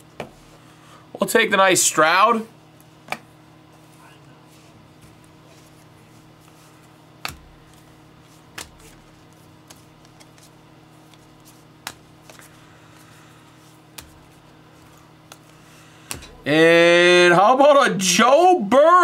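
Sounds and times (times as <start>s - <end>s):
faint steady hum: 0.0s - 19.0s
cards clicking and tapping: 6.4s - 16.4s.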